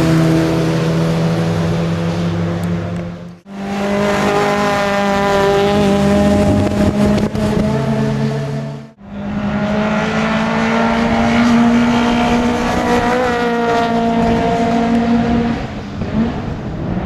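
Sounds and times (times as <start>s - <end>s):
car engine at high revs: 0.0s - 17.0s.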